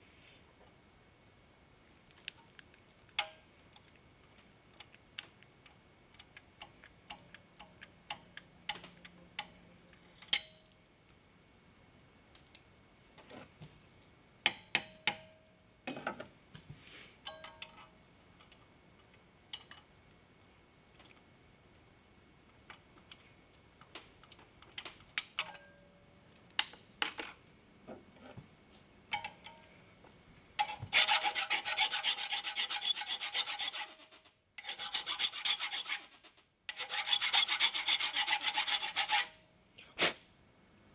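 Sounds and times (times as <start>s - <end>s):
metallic clicks and taps: 2.2s - 10.6s, 29.1s - 29.7s.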